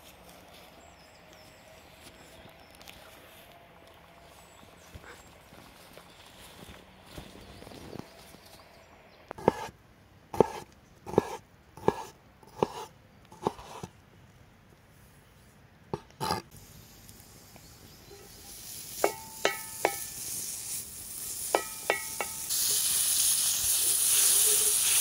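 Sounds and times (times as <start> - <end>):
knife chopping on wooden board: 9.4 - 9.7, 10.4 - 13.9
bacon sizzling in a pan: 18.5 - 25.0.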